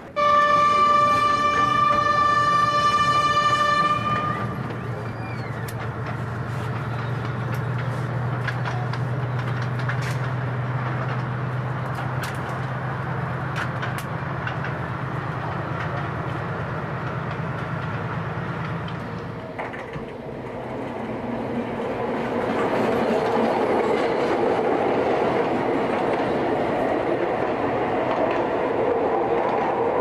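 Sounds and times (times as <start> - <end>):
train rumbling: 0.0 - 30.0
steam locomotive whistle: 0.1 - 5.7
sharp clicks and knocks: 6.8 - 12.8, 13.6 - 14.8.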